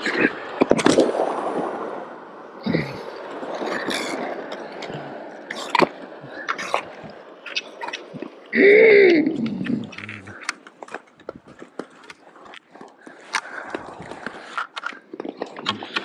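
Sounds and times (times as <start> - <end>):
vocal cry: 2.6 - 3.1, 8.6 - 10.5
ice skates scraping on ice: 3.6 - 7.9, 9.8 - 16.0
pole tips clicking on ice: 9.4 - 16.0.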